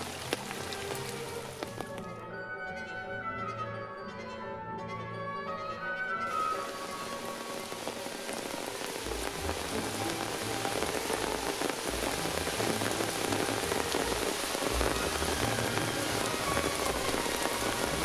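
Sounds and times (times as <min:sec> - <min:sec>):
heavy rain: 0:00.0 - 0:02.2, 0:06.3 - 0:18.0
rainwater runoff streaming: 0:00.0 - 0:02.2, 0:06.2 - 0:18.0.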